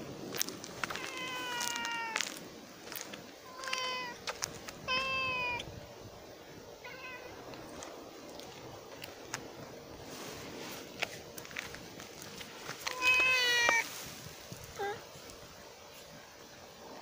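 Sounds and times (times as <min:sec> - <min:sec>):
cat meowing: 0:00.9 - 0:02.2, 0:03.5 - 0:04.2, 0:04.8 - 0:05.7, 0:06.8 - 0:07.4, 0:12.9 - 0:13.8.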